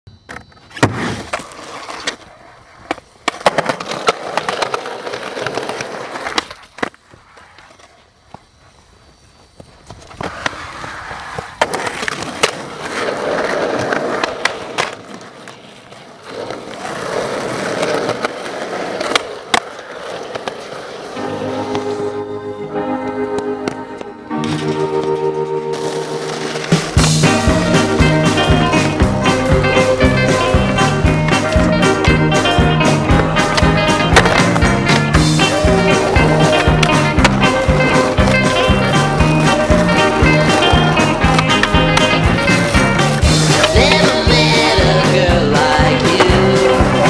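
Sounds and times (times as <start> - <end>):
skateboard wheels rolling: 0.1 - 47.0
skateboard clacking: 0.3 - 8.5, 9.6 - 22.1, 23.4 - 47.0.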